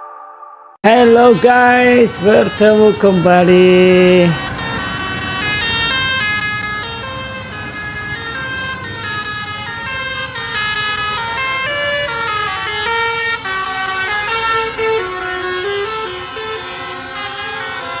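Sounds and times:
multi-tone horn playing a tune: 0.9 - 18.0
low vehicle rumble: 1.0 - 18.0.

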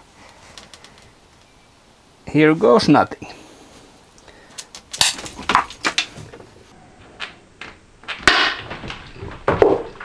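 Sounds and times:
crackling hiss: 0.0 - 6.7
sharp electrical snap: 4.6 - 5.4.

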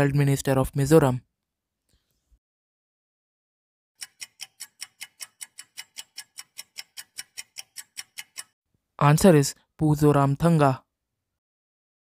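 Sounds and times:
clock ticking: 4.0 - 8.6.

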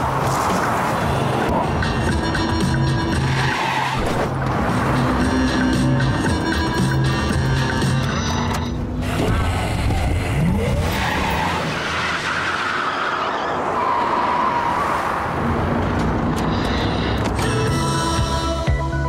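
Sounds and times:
tyres skidding and squealing: 0.0 - 18.0.

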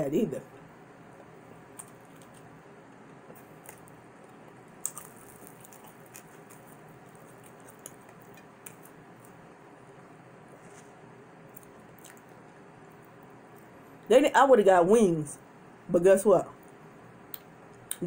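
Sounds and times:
steady low hiss: 0.0 - 18.0
chewing with wet mouth clicks: 4.8 - 9.4, 11.5 - 12.4.

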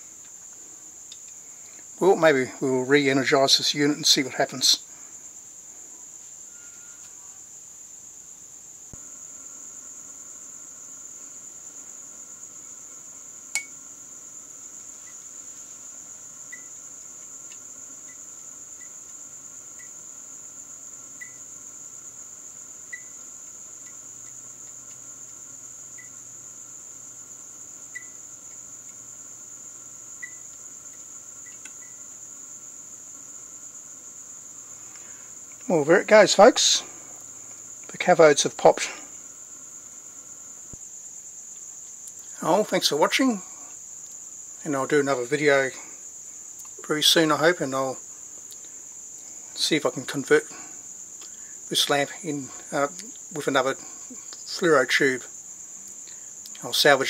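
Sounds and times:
lamp starter ticking: 13.5 - 13.8, 30.2 - 32.0.

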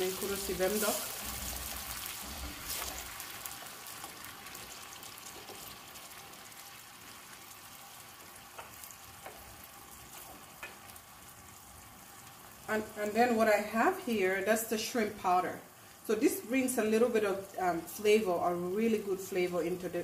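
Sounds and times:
paste sizzling in oil: 0.0 - 13.3.

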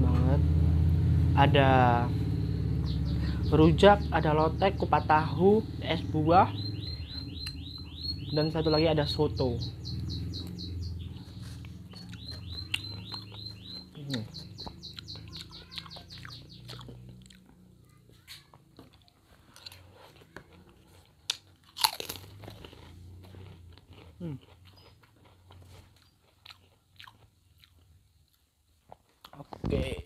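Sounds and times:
crunching and chewing food: 6.6 - 8.1, 9.9 - 29.7.

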